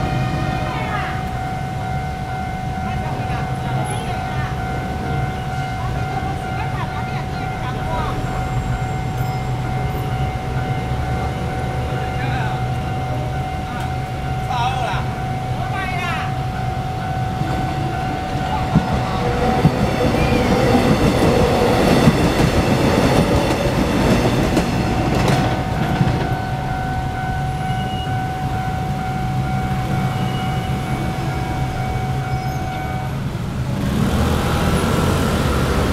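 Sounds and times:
crossing warning bell ringing: 0.0 - 35.9
train wheels clacking on rails: 2.8 - 28.1
scooters starting and pulling away: 33.6 - 35.9.

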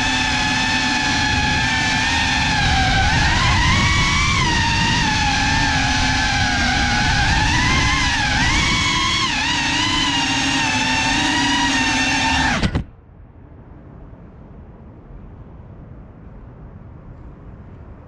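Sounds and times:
drone propellers whining: 0.0 - 13.0.

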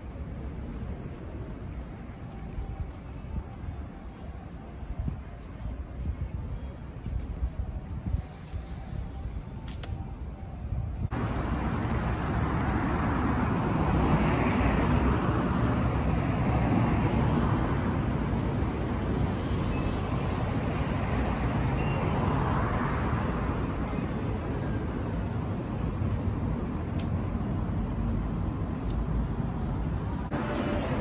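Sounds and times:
traffic rumble: 0.0 - 31.0
cars passing: 11.1 - 31.0.

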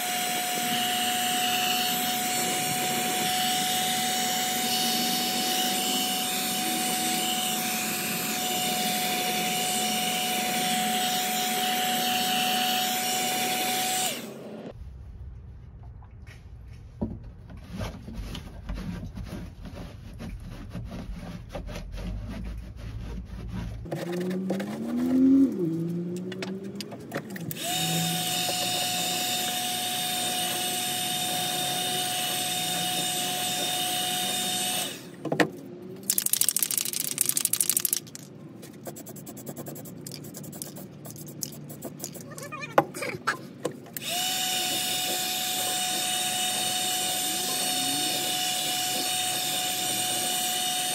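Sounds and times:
heat gun whine and rushing air: 0.0 - 14.8, 27.5 - 35.2, 44.0 - 50.9
spray can rattling: 36.0 - 42.4.

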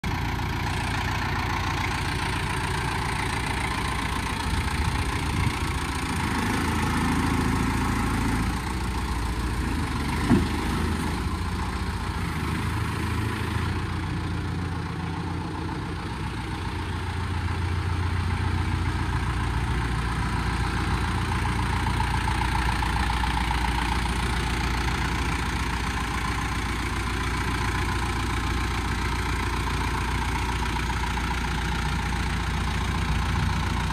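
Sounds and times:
diesel tractor engine idling: 0.0 - 33.9.

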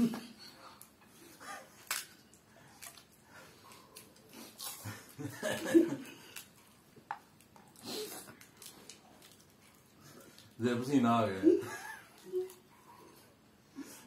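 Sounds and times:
crunching while eating: 1.6 - 10.6
person laughing: 4.8 - 6.3, 11.5 - 12.5.

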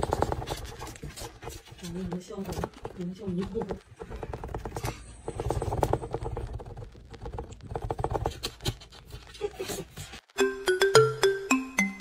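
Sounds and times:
kitten claws scratching cardboard: 0.0 - 9.5.

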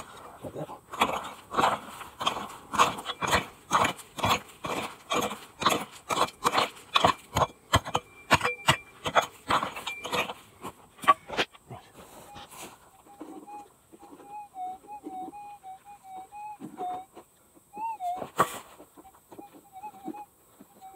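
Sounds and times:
pick striking rocky gravel: 0.9 - 11.6.

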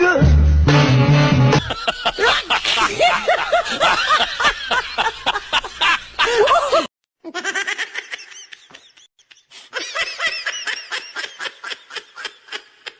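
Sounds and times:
hearty laugh: 1.5 - 12.9
high-pitched cackling laugh: 1.5 - 12.9.

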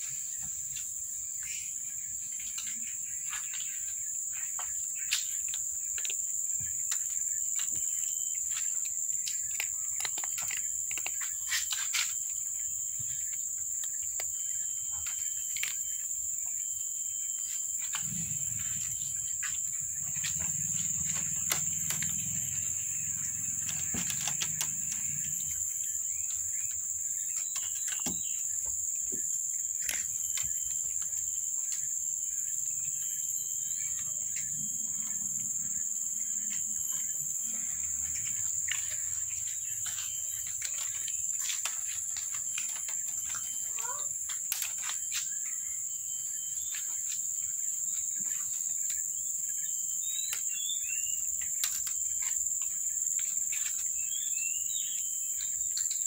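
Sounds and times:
insects droning: 0.0 - 56.0
cats crunching dry kibble: 5.4 - 16.1, 17.8 - 25.7, 37.6 - 45.3.

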